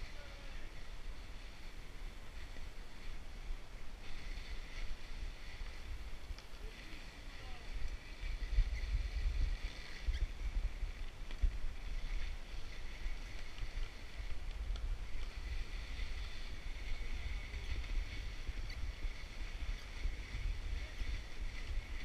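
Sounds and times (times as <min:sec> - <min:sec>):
bike riding over crusty snow: 0:00.0 - 0:22.0
wind buffeting microphone: 0:00.0 - 0:22.0
light clicks from bike: 0:05.6 - 0:07.0, 0:07.8 - 0:08.8, 0:09.6 - 0:20.8.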